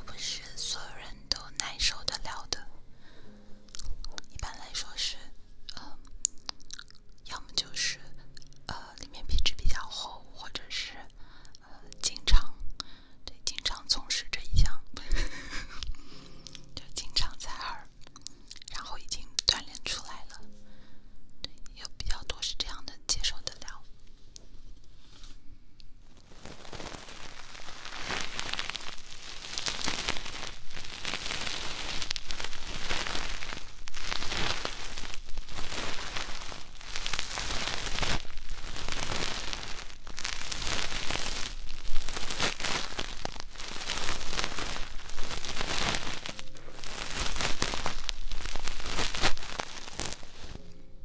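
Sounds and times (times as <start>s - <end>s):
cord scratching on microphone: 26.1s - 50.6s.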